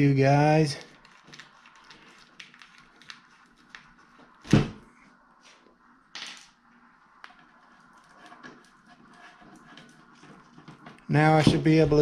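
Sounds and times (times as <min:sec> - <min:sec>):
solid thump: 0:04.5 - 0:04.8
scraping rub: 0:07.3 - 0:12.0.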